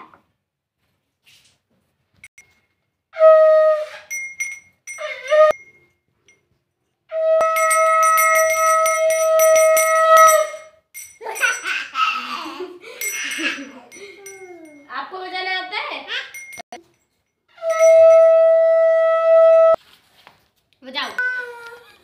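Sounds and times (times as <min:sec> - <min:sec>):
hand bell rung rapidly: 0:04.1 - 0:05.9, 0:07.4 - 0:11.9, 0:13.0 - 0:15.0, 0:16.2 - 0:16.8, 0:17.6 - 0:18.4
conch shell blown: 0:07.1 - 0:10.6, 0:17.6 - 0:19.8
child's voice: 0:21.0 - 0:22.0.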